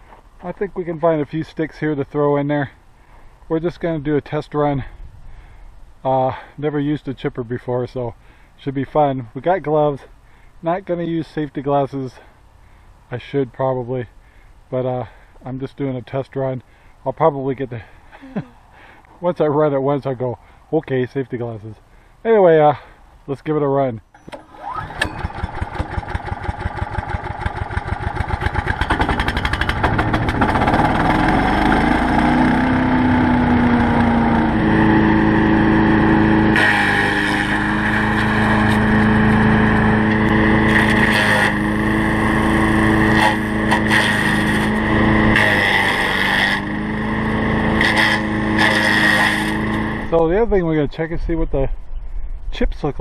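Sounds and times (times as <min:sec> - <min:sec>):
wood chipper grinding sticks: 0:24.2 - 0:50.2
small gasoline engine running: 0:24.4 - 0:50.2.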